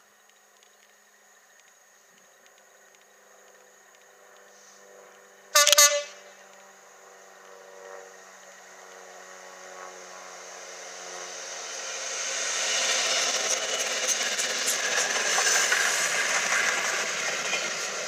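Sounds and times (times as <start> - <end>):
train engine and wheels approaching: 0.0 - 18.0
locomotive horn blast: 5.6 - 6.4.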